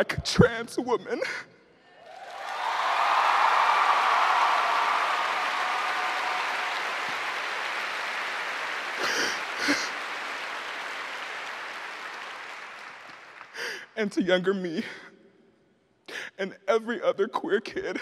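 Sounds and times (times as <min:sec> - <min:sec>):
audience applauding: 0:02.0 - 0:14.0.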